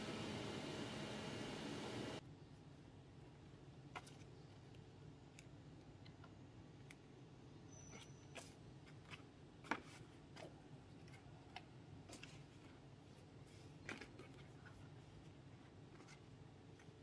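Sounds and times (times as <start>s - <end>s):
low steady hum: 0.0s - 7.7s.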